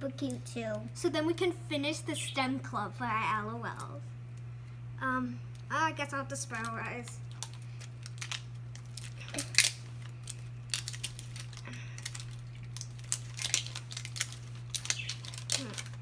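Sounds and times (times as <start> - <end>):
steady low hum: 0.0 - 16.0
plastic wrapping crinkling: 6.4 - 16.0.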